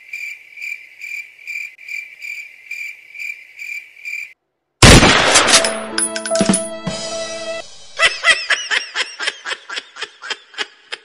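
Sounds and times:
cricket chirping: 0.0 - 4.4.

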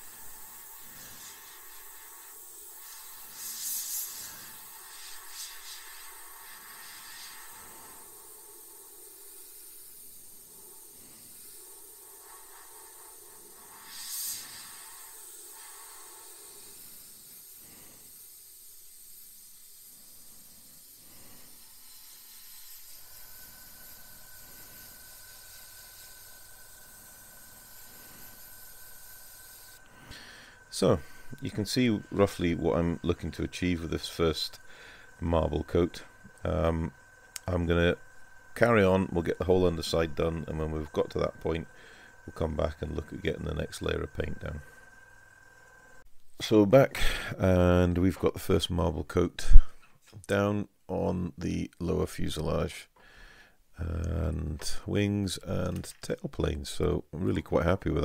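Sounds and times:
airbrush hissing: 0.0 - 46.1
burst of air: 0.0 - 46.1
faint steady whine: 0.0 - 58.0.

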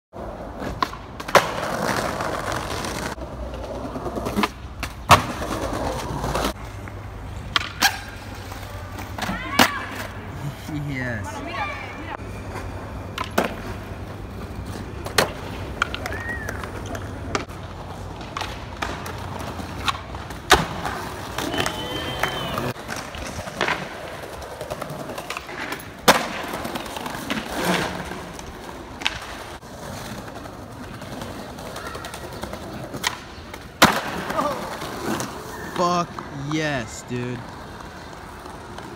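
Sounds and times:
skateboard wheels rolling on pavement: 0.1 - 38.9
skateboard landing slam: 5.0 - 5.5, 33.8 - 34.5
skateboard clacks: 14.6 - 36.5.

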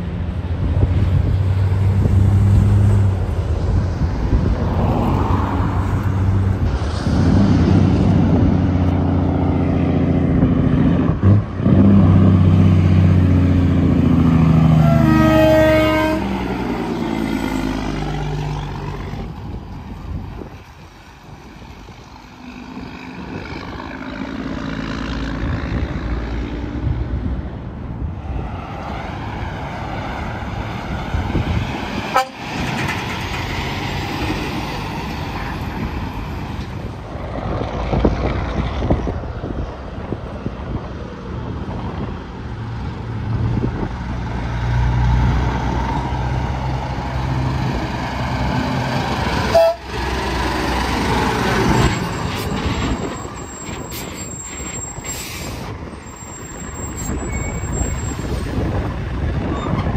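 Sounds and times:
semi-trucks passing: 0.0 - 59.9
truck horn blast: 14.7 - 16.8, 32.1 - 32.5, 49.5 - 50.1.

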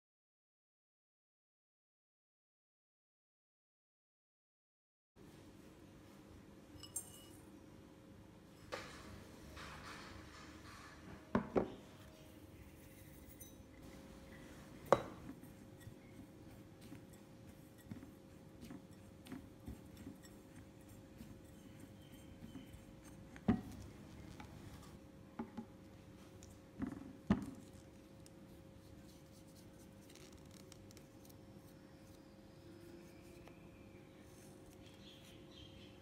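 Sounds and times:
spatula scraping in glass bowl: 12.6 - 25.0.

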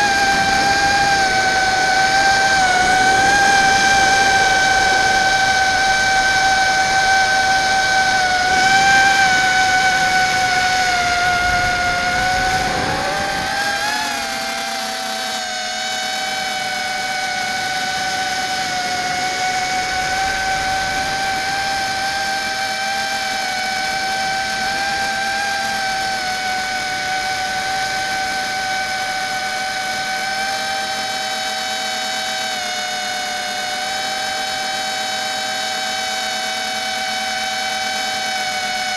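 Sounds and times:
low wind rumble: 0.0 - 14.7, 16.2 - 29.5
drone propellers whining: 0.0 - 38.9.

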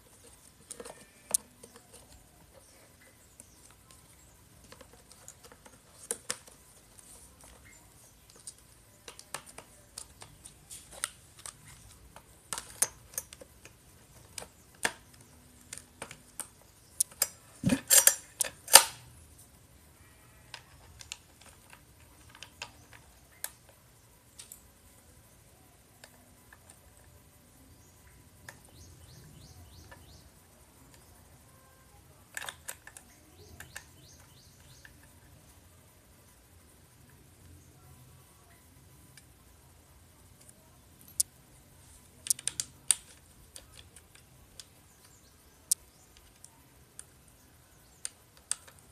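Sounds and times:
bird chirping: 0.0 - 10.6, 27.4 - 35.6, 44.6 - 48.9
hex key clicking on metal: 15.7 - 19.0
sharp plastic clicks and taps: 48.0 - 48.9.

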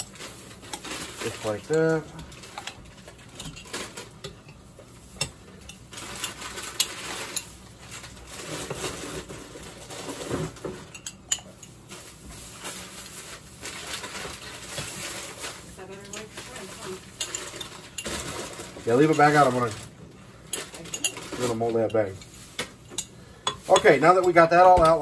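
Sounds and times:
metal utensil scraping glass jar: 20.5 - 22.3, 22.9 - 25.0.

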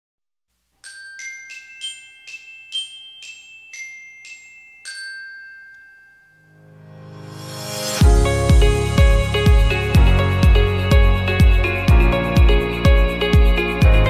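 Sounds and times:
bell-like mallet notes: 0.8 - 6.8.

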